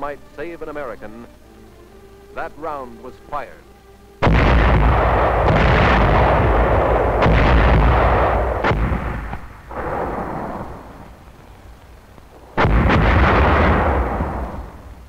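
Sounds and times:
sharp artillery reports: 0.0s - 1.4s, 2.3s - 3.6s, 4.2s - 10.8s, 12.6s - 14.8s
artillery rumble: 4.2s - 15.0s.

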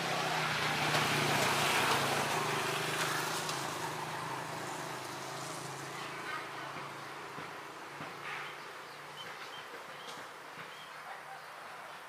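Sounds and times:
vehicle passing: 0.0s - 8.6s.

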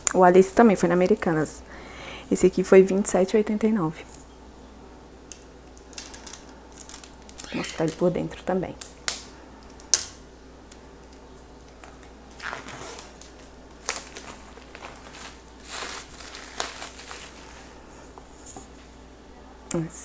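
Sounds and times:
plastic film crinkling and tearing: 11.8s - 17.8s.

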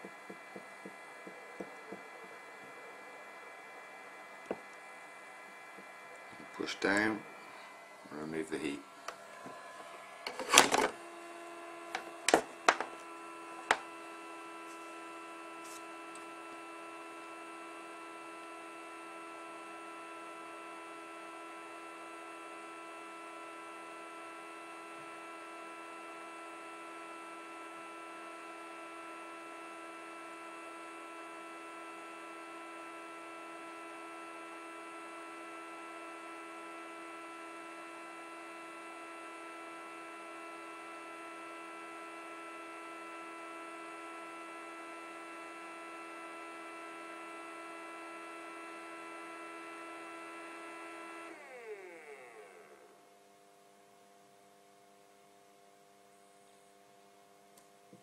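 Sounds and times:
electrical hum: 0.0s - 54.4s.

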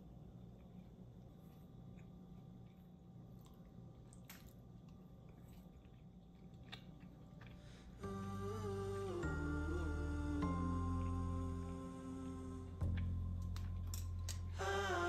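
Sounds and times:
food being eaten: 0.3s - 14.8s
gentle background music: 6.7s - 15.0s.

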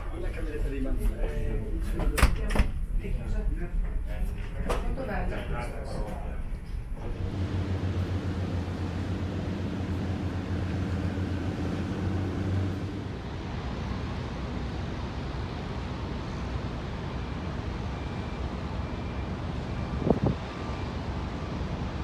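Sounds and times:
steady low hum: 0.0s - 22.0s
wind-like noise: 8.2s - 22.0s.

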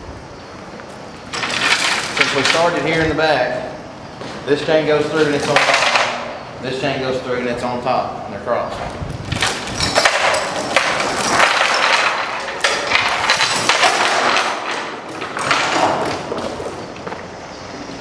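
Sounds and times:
steel chain rattling and clanking: 1.3s - 3.0s, 4.9s - 6.3s, 9.2s - 17.0s.

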